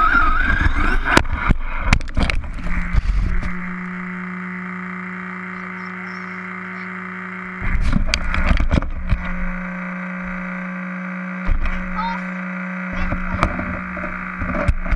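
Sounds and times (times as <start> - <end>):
knocks and scraping of toy car: 0.0 - 3.7, 7.6 - 9.6, 11.4 - 12.1, 13.0 - 14.9
steady hum: 0.0 - 14.9.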